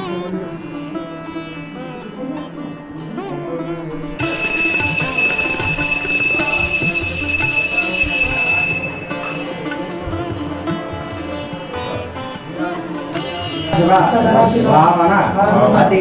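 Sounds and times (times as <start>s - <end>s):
bell ringing: 4.2s - 10.8s.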